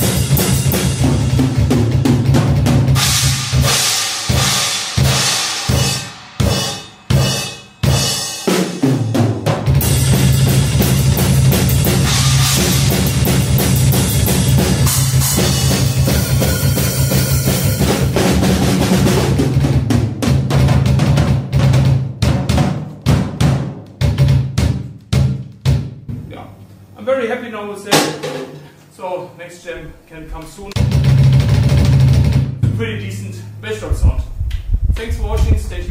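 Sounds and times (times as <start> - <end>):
drum kit playing: 0.0 - 26.6, 27.9 - 28.8, 29.8 - 35.9
cymbals crashing: 3.0 - 11.0, 11.8 - 18.2.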